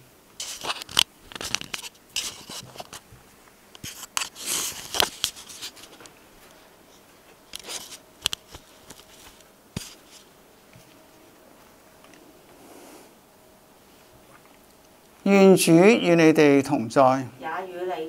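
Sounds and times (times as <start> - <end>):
handling rustling and scraping: 0.4 - 13.2.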